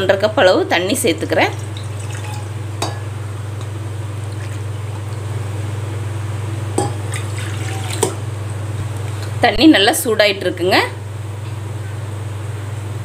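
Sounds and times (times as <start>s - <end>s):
steady low hum: 0.0s - 13.0s
water pouring into pan: 1.5s - 2.8s, 7.0s - 8.2s.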